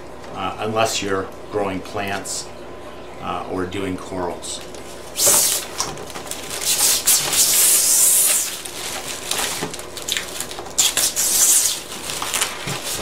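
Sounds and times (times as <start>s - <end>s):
plastic film peeling and crackling: 4.7s - 13.0s.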